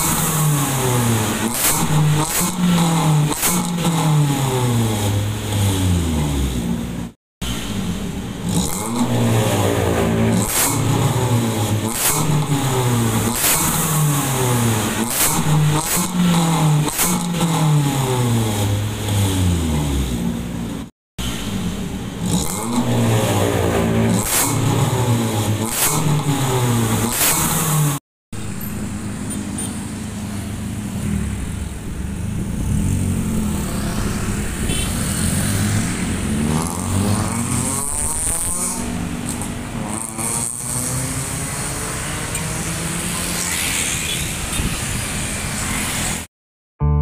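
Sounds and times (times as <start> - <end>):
car exhaust revving: 0.0 - 29.2, 30.7 - 43.4
vehicles passing by: 0.0 - 46.3
motor scooters driving past: 8.6 - 12.0, 22.2 - 25.4, 31.0 - 46.3.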